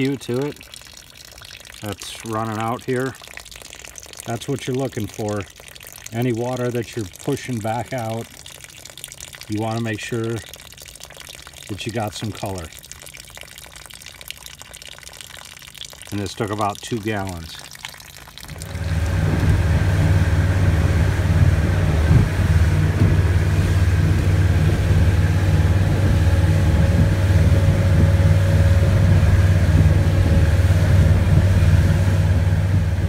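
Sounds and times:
boat engine droning: 18.5 - 33.0.

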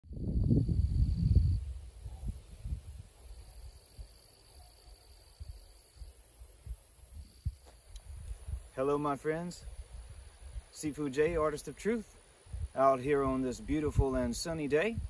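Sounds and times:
wind buffeting microphone: 0.0 - 4.1, 5.4 - 8.7, 12.5 - 15.0.

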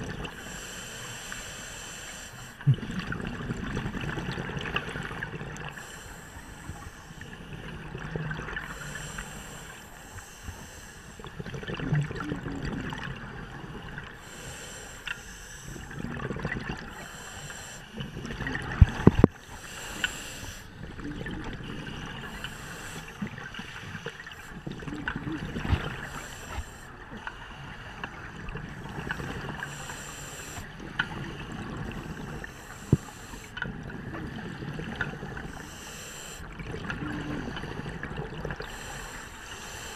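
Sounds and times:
diver breathing underwater: 0.2 - 2.8, 5.1 - 11.4, 14.1 - 24.9, 25.6 - 33.6, 34.2 - 39.9
exhaled bubbles bursting: 2.6 - 5.6, 11.4 - 13.4, 15.8 - 16.9, 20.8 - 22.3.

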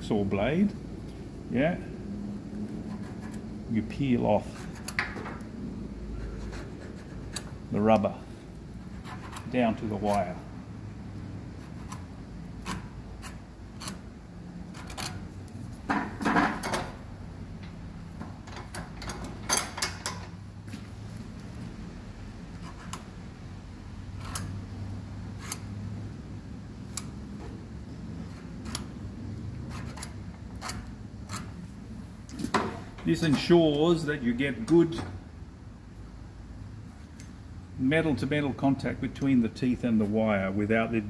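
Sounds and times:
low workshop hum: 0.0 - 41.0
hacksaw blade scraping rubber: 2.9 - 3.4, 8.9 - 9.6, 25.4 - 25.7.

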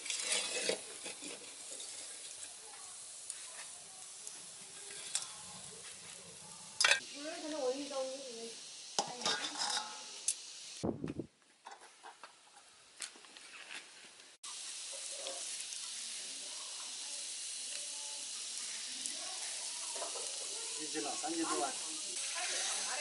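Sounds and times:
metal tongs clinking in charcoal: 0.0 - 7.0, 9.0 - 10.4
fish sizzling on a grill: 0.0 - 10.9, 12.9 - 23.0.

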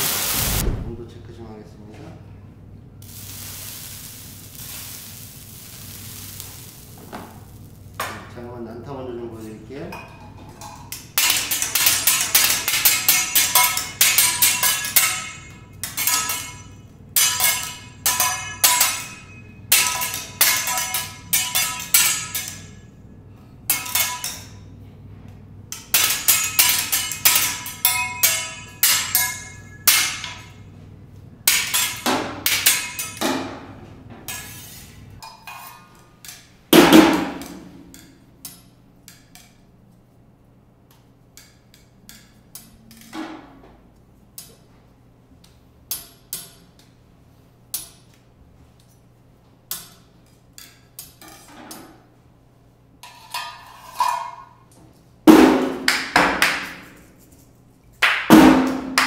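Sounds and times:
metal cooking tools clanging: 9.4 - 22.9, 23.7 - 24.6, 25.7 - 30.6, 31.4 - 33.6, 34.2 - 39.6, 53.0 - 54.7.

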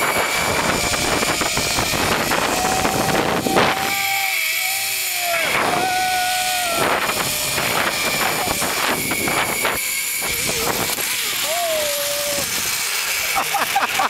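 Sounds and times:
wind rushing over microphone: 0.0 - 4.2, 5.4 - 11.3
zip line pulley whine: 0.0 - 14.0.

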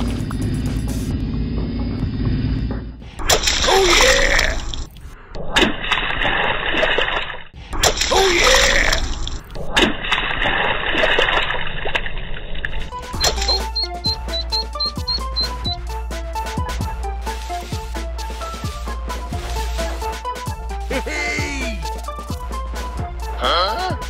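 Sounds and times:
wet splattering and squelching: 3.2 - 14.3.

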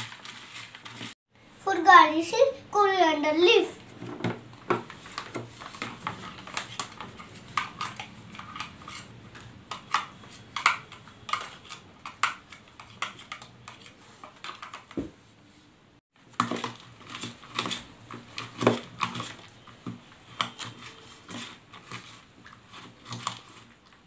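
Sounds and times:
metal spoon scraping plastic bowl: 3.9 - 14.7, 16.4 - 23.8.

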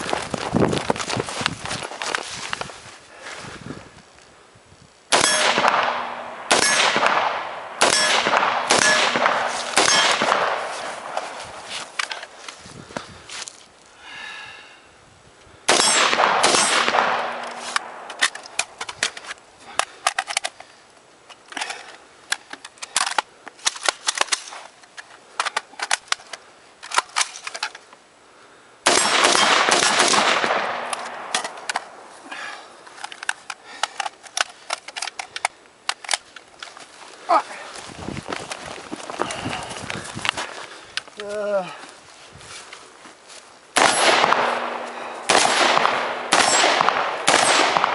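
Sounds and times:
steel target ringing: 5.1 - 10.4
rifle shots: 5.1 - 12.0, 15.7 - 18.8, 28.8 - 32.0, 43.8 - 47.9.

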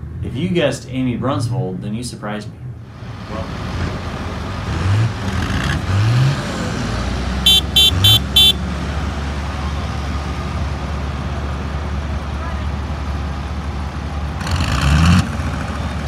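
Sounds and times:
tractor engines rumbling: 0.0 - 16.0
horn beeps: 7.4 - 8.6.

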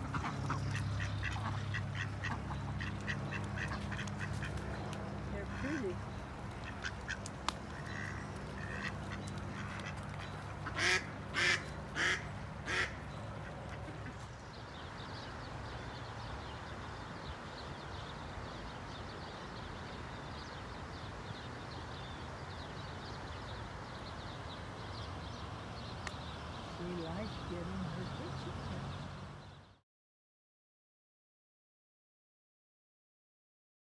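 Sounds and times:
mallard quacking: 0.0 - 4.7, 5.3 - 6.0, 6.6 - 14.2.

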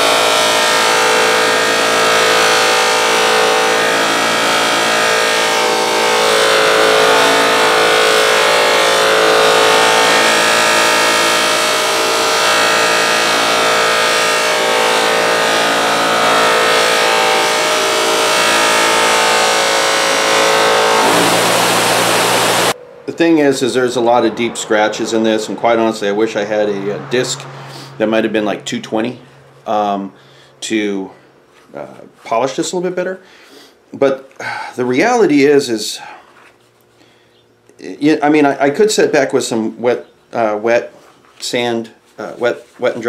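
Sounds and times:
bench buffer motor whine: 0.0 - 22.8.

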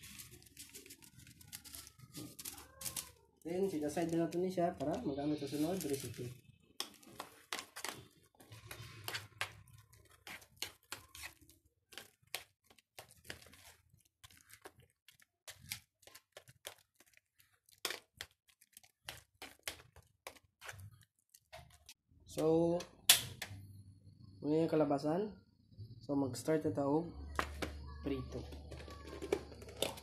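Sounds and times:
squishes and crackly clicks: 0.0 - 5.1, 5.7 - 22.0
hands kneading wet mixture: 0.0 - 22.5.

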